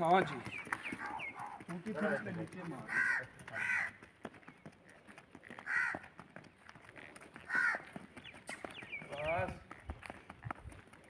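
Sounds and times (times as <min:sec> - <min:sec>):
horse hooves on packed dirt: 0:00.0 - 0:11.0
crow cawing: 0:01.0 - 0:04.1, 0:05.6 - 0:06.2, 0:07.4 - 0:08.0.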